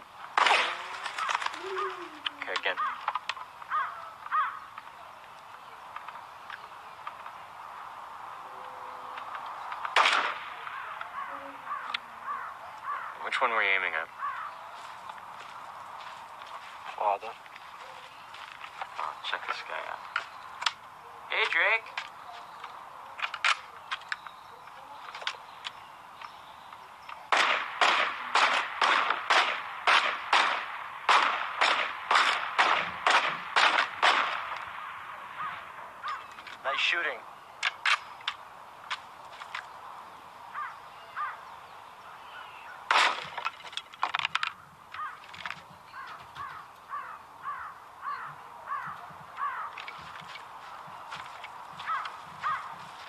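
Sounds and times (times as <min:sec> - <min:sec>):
rifle shots: 0:00.4 - 0:01.4, 0:09.9 - 0:10.8, 0:27.3 - 0:35.0, 0:42.9 - 0:43.5
crows cawing: 0:00.8 - 0:05.1, 0:08.3 - 0:16.8, 0:33.2 - 0:36.9, 0:40.3 - 0:43.4, 0:44.4 - 0:53.0.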